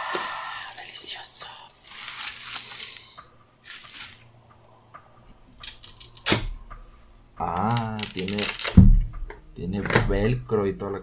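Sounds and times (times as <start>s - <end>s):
plastic wrapping rustling: 0.0s - 4.5s, 5.5s - 6.6s, 7.5s - 9.0s.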